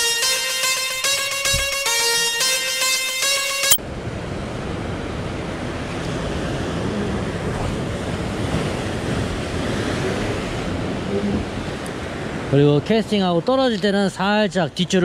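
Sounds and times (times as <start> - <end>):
plucked-string music: 0.0 - 3.8.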